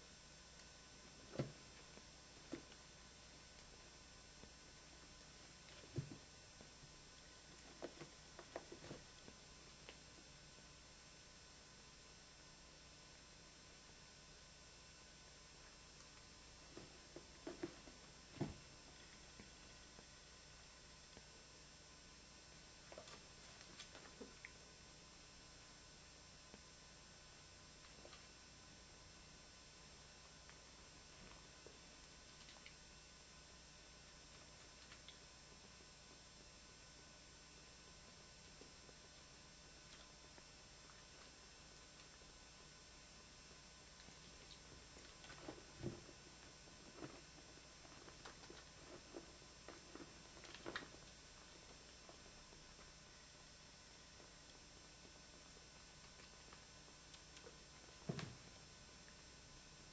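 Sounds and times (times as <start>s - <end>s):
electrical hum: 0.0s - 59.9s
soft clicks and rustles: 43.9s - 53.0s.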